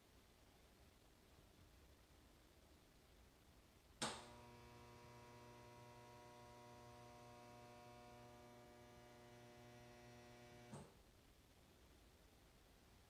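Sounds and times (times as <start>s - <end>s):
faint electrical hum: 0.0s - 13.0s
sharp click: 4.0s - 4.4s.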